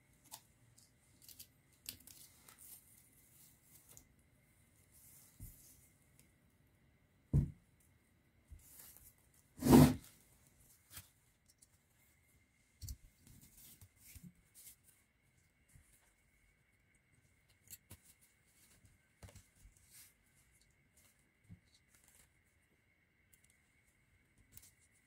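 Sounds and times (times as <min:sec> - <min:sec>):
rustling of tape and wires: 0:00.0 - 0:06.4, 0:08.4 - 0:25.0
knock: 0:07.3 - 0:07.6.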